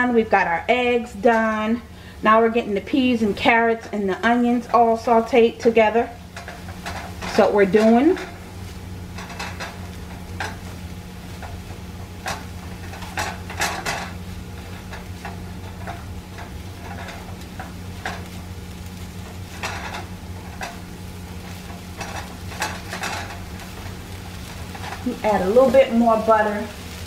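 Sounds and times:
steady low hum: 0.0 - 27.0
vegetables sizzling: 0.0 - 27.0
spatula scraping a skillet: 4.5 - 27.0.

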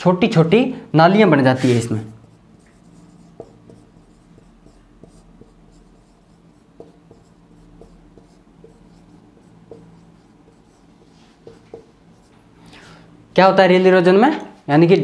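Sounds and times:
marker writing on whiteboard: 1.6 - 12.5.

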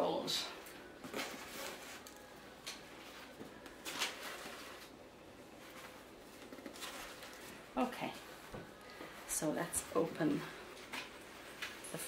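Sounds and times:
packing paper rustling: 0.6 - 9.1.

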